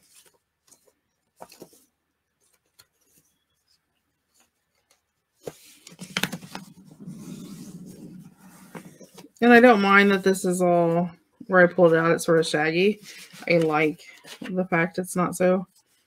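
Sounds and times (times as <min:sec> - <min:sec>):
paper rustling: 0:00.0 - 0:10.1, 0:11.9 - 0:14.8, 0:15.7 - 0:16.0
paper rubbing by hand: 0:05.4 - 0:10.1.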